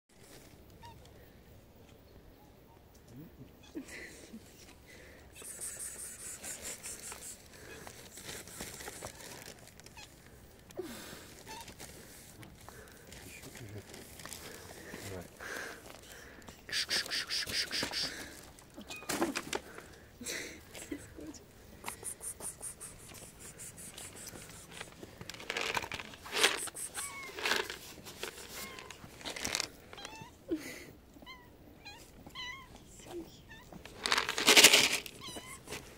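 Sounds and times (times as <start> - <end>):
rustling and crinkling: 0.1 - 1.1, 6.2 - 16.5, 17.8 - 21.0, 22.8 - 30.3, 33.6 - 35.9
cats meowing: 6.6 - 10.4, 16.6 - 19.5, 26.3 - 30.5, 31.1 - 34.0, 35.1 - 35.9
low cat call: 16.7 - 18.2.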